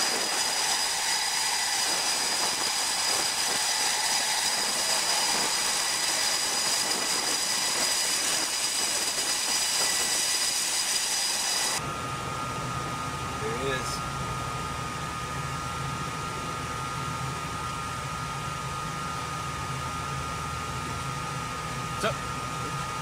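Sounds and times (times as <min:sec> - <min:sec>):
jet engines roaring: 0:00.0 - 0:17.6
low hum: 0:00.0 - 0:23.0.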